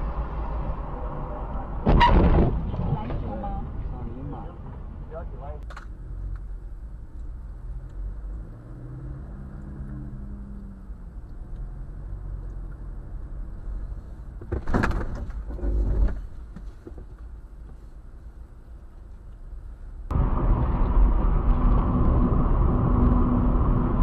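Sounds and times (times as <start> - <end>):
car engine: 0.0 - 24.0
road noise inside car: 0.0 - 24.0
loud sudden noises: 1.7 - 3.3.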